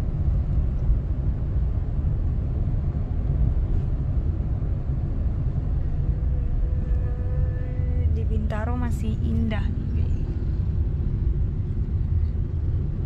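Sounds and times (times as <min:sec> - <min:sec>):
car interior road rumble: 0:00.0 - 0:13.0.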